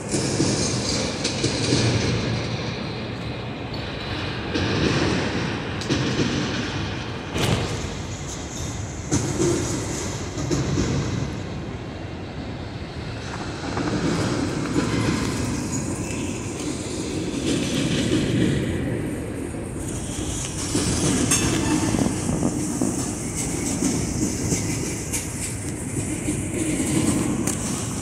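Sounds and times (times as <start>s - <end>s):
steel wheels rumbling on rail: 0.0s - 28.0s
sharp clacks and knocks: 3.8s - 11.5s, 19.8s - 28.0s.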